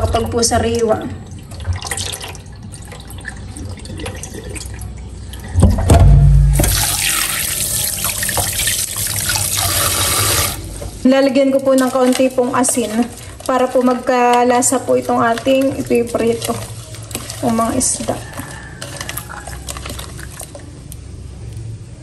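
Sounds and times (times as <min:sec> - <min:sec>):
tap water running into basin: 0:00.0 - 0:11.0, 0:11.7 - 0:20.7
water sloshing: 0:00.0 - 0:21.1
loud low bump: 0:05.6 - 0:07.0.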